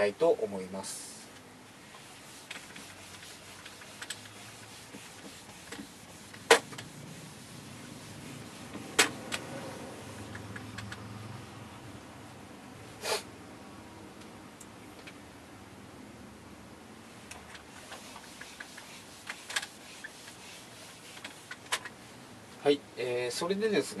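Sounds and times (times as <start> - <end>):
eraser rubbing on whiteboard: 2.0 - 10.7, 17.6 - 22.1.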